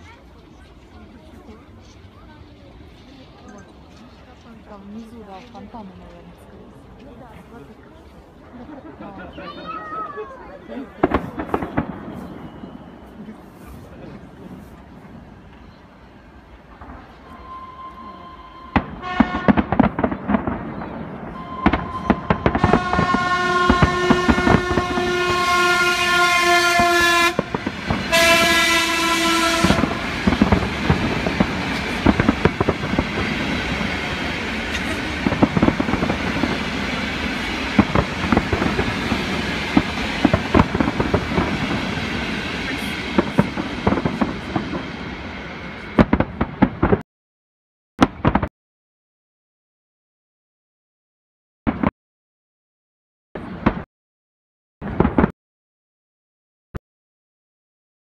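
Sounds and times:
fireworks bangs and crackles: 0.0s - 47.0s, 48.0s - 48.5s, 51.7s - 51.9s, 53.4s - 53.9s, 54.8s - 55.3s
horn sounding: 17.3s - 19.6s, 21.4s - 30.2s.

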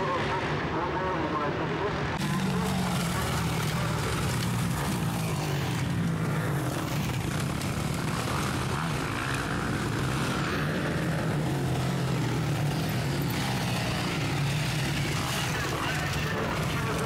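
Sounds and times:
dirt bike engines running hard: 0.0s - 17.0s.

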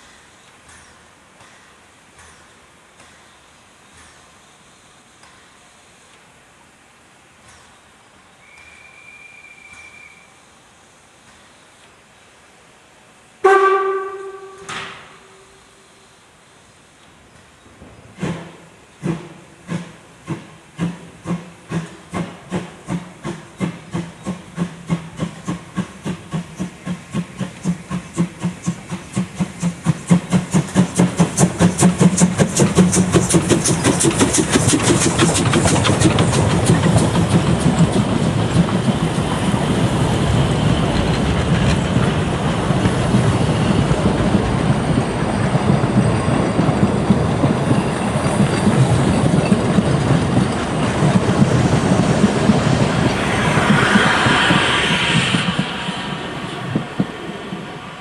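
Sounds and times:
steam locomotive exhaust beats: 0.0s - 58.0s
wheels clicking over rail joints: 17.0s - 53.5s
carriages rumbling past: 30.1s - 58.0s.

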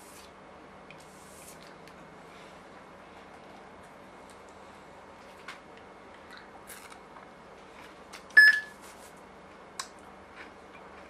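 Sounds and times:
short electronic beep: 8.4s - 8.7s.

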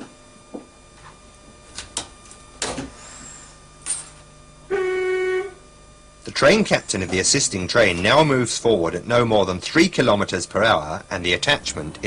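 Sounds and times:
loud steady pitched tone: 4.4s - 12.0s.

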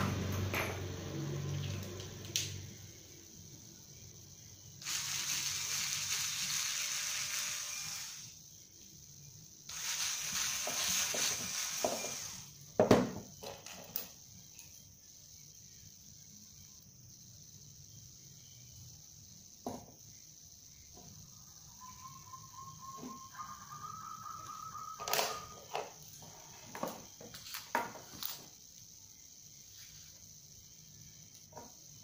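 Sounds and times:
cordless drill boring wood: 4.8s - 8.4s, 9.7s - 12.6s.

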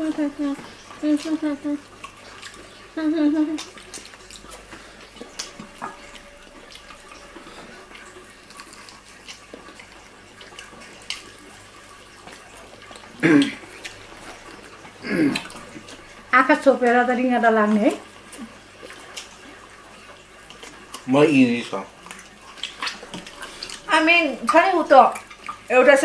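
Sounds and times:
people chewing food: 0.0s - 26.0s.

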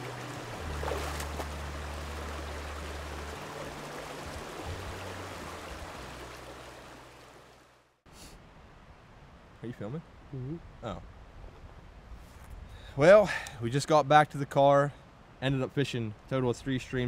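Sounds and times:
stream rushing over stones: 0.0s - 7.9s.

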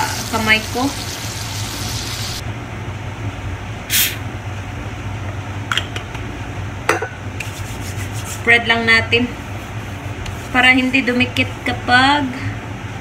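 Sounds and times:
cooking spray hissing: 0.0s - 2.4s, 3.9s - 4.2s.

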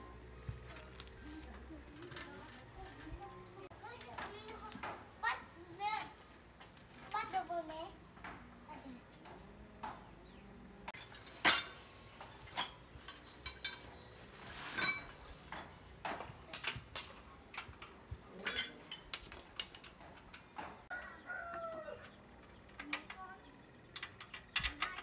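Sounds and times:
hand tools clinking on metal: 10.9s - 21.1s, 22.0s - 25.0s.

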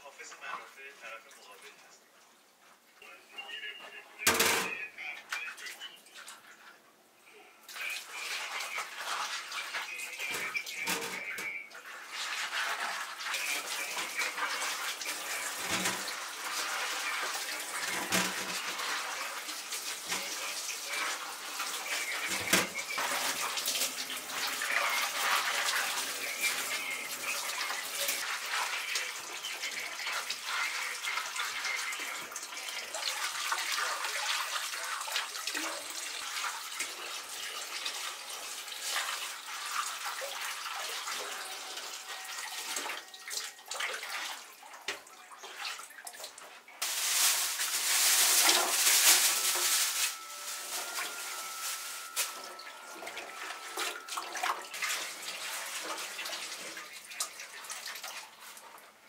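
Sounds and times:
tap water running into sink: 12.1s - 58.6s.

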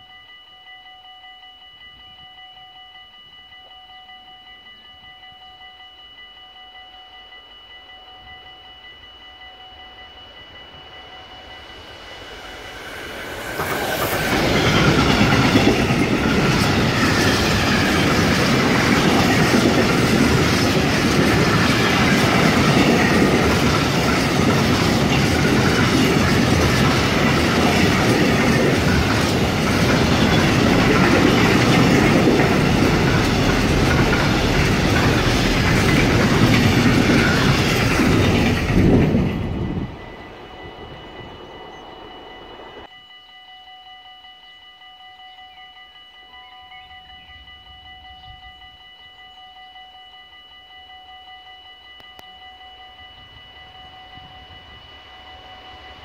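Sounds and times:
freight train passing: 6.1s - 42.9s, 51.9s - 56.0s.

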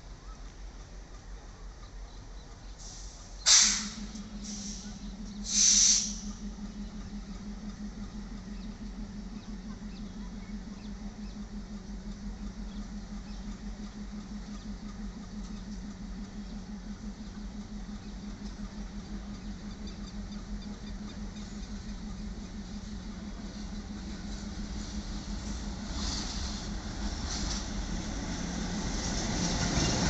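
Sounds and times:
diesel locomotive engine hum: 0.0s - 30.0s
short loud hiss: 3.0s - 4.0s.

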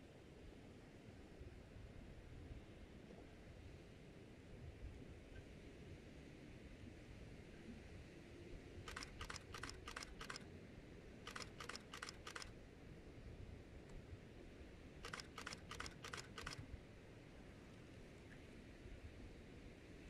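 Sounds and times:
camera shutter clicking: 8.9s - 10.4s, 11.3s - 12.5s, 15.0s - 16.6s.

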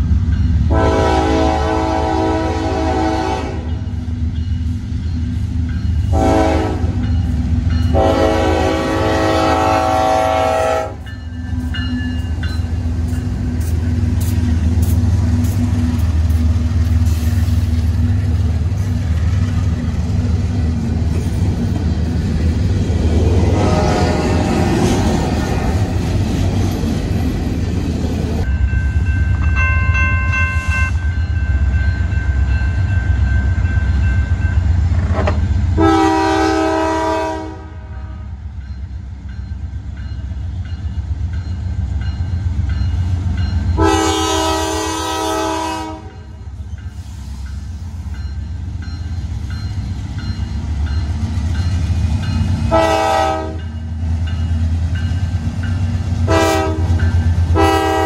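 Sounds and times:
rumble of freight train rolling: 0.0s - 58.0s
train horn blasts: 0.7s - 3.9s, 6.0s - 7.2s, 7.8s - 11.2s, 23.5s - 24.6s, 35.1s - 38.5s, 43.7s - 46.6s, 52.6s - 53.8s, 56.2s - 58.0s.

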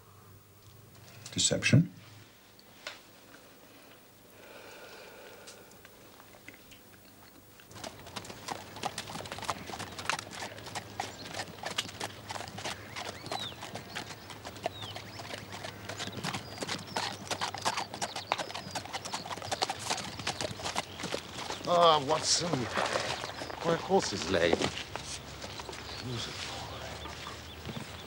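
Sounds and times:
horse hooves clip-clopping: 6.2s - 28.0s.

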